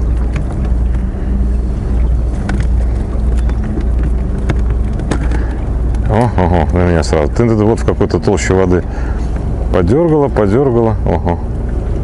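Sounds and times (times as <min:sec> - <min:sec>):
boat motor humming: 0:00.0 - 0:12.0
small clicks and knocks: 0:02.4 - 0:06.1.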